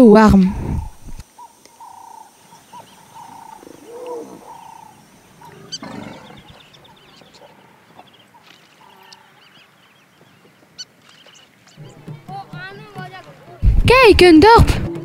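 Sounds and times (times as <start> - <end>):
wild animal calls: 0.5 - 9.9
animal cry: 1.4 - 7.8.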